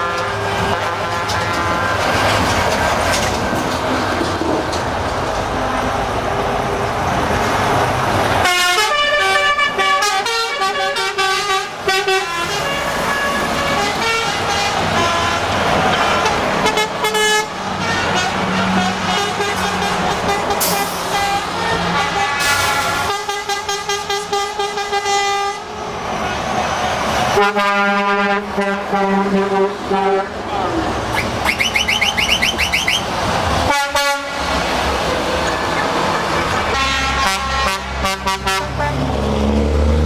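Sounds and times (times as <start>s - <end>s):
truck air horns: 0.0s - 2.3s, 8.4s - 25.8s, 27.3s - 30.4s, 31.1s - 34.8s, 36.4s - 39.2s
heavy trucks driving past: 0.0s - 40.0s
horn playing changing notes: 8.4s - 25.7s, 31.1s - 33.1s, 36.7s - 39.0s.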